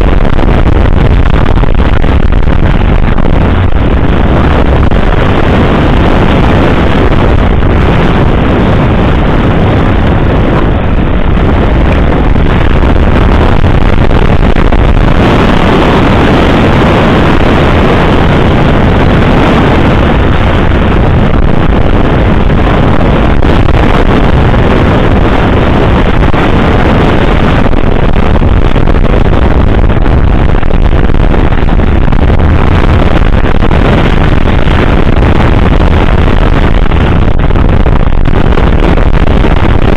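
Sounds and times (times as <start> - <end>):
wind rush on microphone: 0.0 - 39.9
motorcycle engine running: 19.7 - 39.8.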